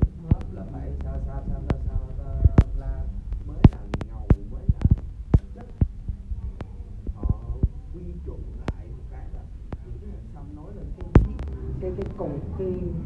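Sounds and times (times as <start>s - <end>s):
microphone handling clicks and knocks: 0.0s - 7.8s, 11.0s - 12.2s.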